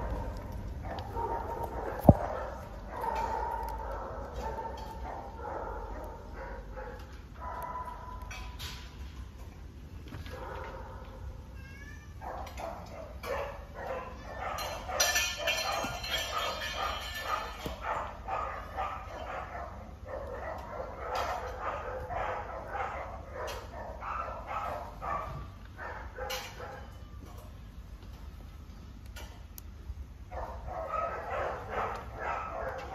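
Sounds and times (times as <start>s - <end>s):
dogs barking: 0.0s - 8.6s, 10.2s - 11.4s, 12.2s - 27.0s, 30.2s - 32.9s.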